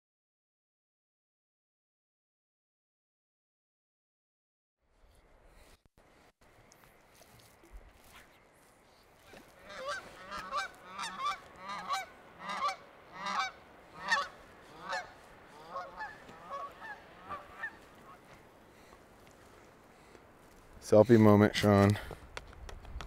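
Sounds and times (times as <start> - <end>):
geese honking: 9.2 - 19.0.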